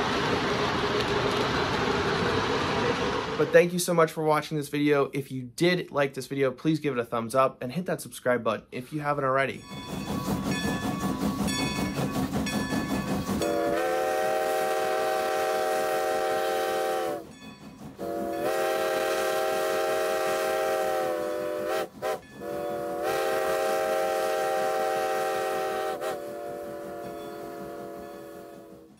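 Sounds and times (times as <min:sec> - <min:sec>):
train wheels clattering: 0:09.6 - 0:19.7, 0:25.9 - 0:28.9
train whistle blasts: 0:13.4 - 0:17.3, 0:18.0 - 0:28.9.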